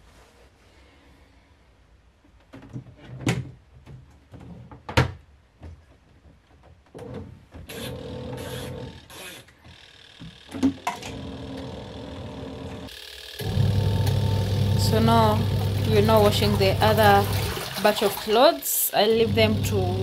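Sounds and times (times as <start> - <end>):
washing machine running: 7.7 - 9.1, 10.7 - 20.0.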